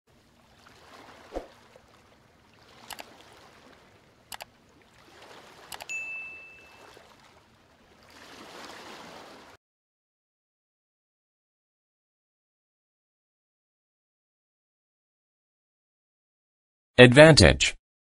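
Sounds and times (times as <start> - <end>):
bell ding: 5.9 - 6.8.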